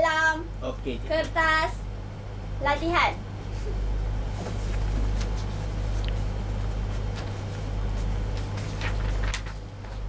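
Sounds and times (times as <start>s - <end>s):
low room hum: 0.0s - 10.0s
paper rustling: 4.4s - 6.2s, 6.8s - 10.0s.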